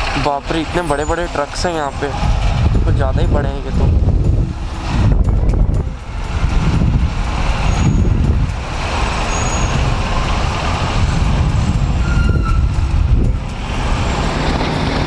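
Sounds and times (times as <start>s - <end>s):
heavy truck traffic: 0.0s - 15.0s
wind rumble on microphone: 1.8s - 15.0s
motorcycle engine running: 2.1s - 15.0s.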